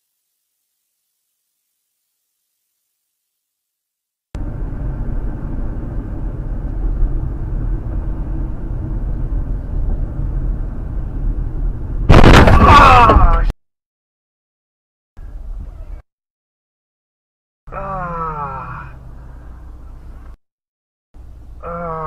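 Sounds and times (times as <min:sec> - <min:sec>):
car driving rumble: 0:04.4 - 0:13.5.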